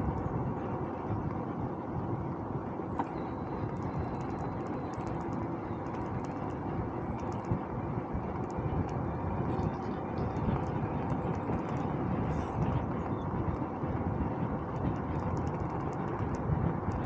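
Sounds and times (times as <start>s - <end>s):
bicycle tyre rumble: 0.0s - 17.0s
wind rush on microphone: 0.0s - 17.0s
faint high ticks: 3.0s - 7.6s, 14.8s - 17.0s.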